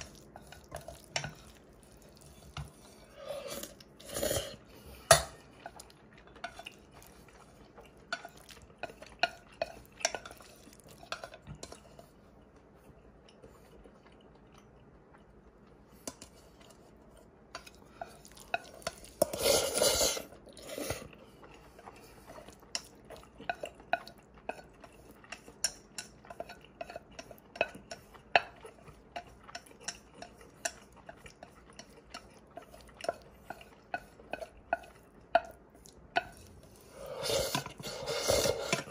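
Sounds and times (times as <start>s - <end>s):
utensil scraping steel pot: 19.2s - 21.0s, 36.2s - 38.9s.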